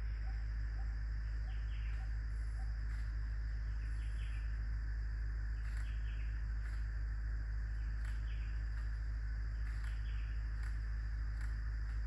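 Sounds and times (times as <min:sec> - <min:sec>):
bird chirps: 0:00.0 - 0:03.1, 0:03.7 - 0:04.5, 0:05.6 - 0:06.4, 0:09.5 - 0:10.8
insect drone: 0:00.0 - 0:12.0.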